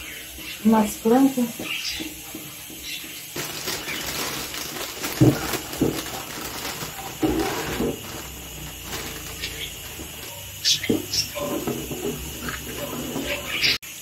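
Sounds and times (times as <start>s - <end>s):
plastic bag crinkling: 3.4s - 13.8s.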